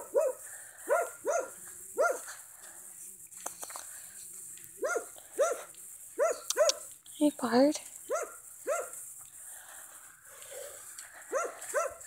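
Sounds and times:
dog barking: 0:00.0 - 0:02.3, 0:04.8 - 0:06.9, 0:08.1 - 0:09.0, 0:11.3 - 0:12.0.

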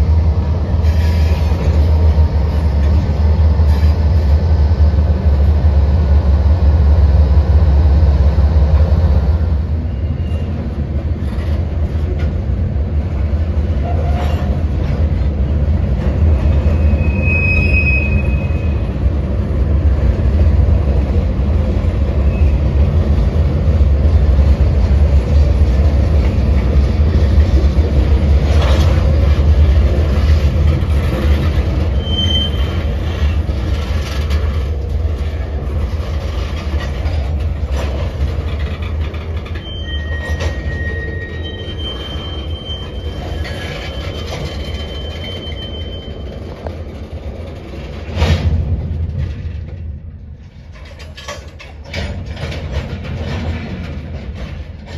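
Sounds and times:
freight train wheels rumbling: 0:00.0 - 0:54.9
wheel squeals: 0:09.8 - 0:10.7, 0:16.4 - 0:19.0, 0:30.2 - 0:34.8, 0:36.0 - 0:47.7.

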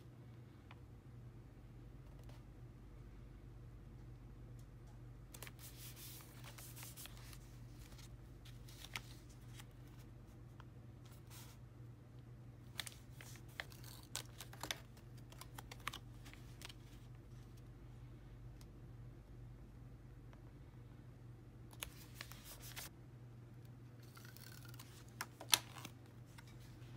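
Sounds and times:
paper rustling: 0:05.4 - 0:10.1, 0:12.7 - 0:17.6, 0:21.8 - 0:22.9
tape tearing: 0:24.0 - 0:25.9.

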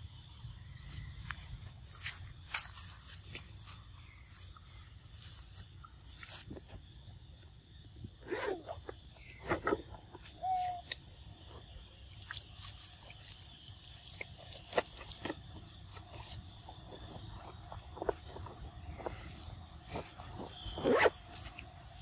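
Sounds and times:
insect drone: 0:00.0 - 0:22.0
monkey calls and squeaks: 0:10.4 - 0:10.9.

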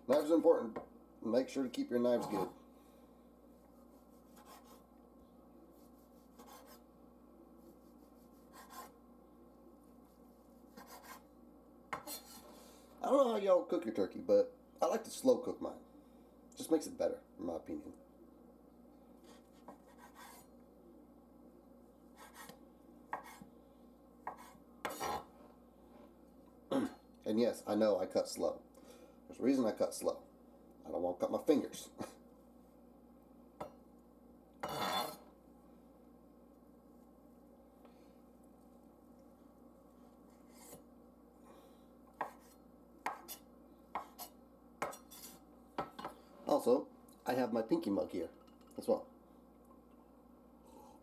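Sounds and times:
knife tapping wooden board: 0:43.1 - 0:43.3.

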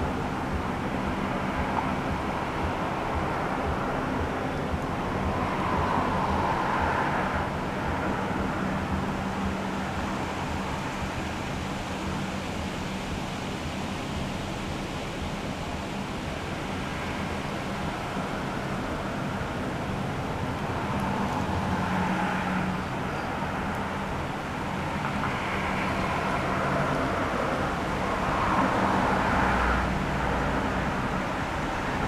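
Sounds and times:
vehicle passing: 0:00.0 - 0:11.2, 0:24.9 - 0:32.0
distant road traffic rumble: 0:00.0 - 0:32.0.

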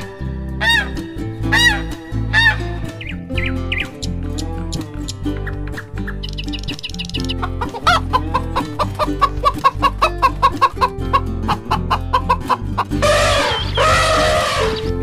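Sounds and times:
light background music: 0:00.0 - 0:15.0
high chirps: 0:06.0 - 0:08.0, 0:13.0 - 0:15.0
chicken clucking: 0:07.2 - 0:14.8
rough animal call: 0:13.0 - 0:15.0.

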